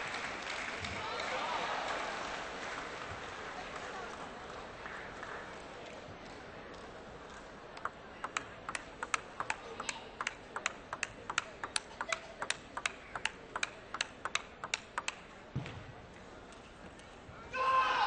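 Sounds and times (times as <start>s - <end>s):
table tennis ball rally clicks: 7.7s - 15.3s.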